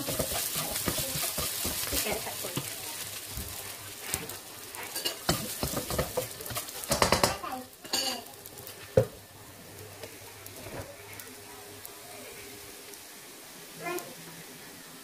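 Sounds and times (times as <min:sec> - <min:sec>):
spatula knocking wok: 0:00.0 - 0:09.2
spatula scraping wok: 0:00.0 - 0:09.2
sizzling in pan: 0:00.0 - 0:15.0.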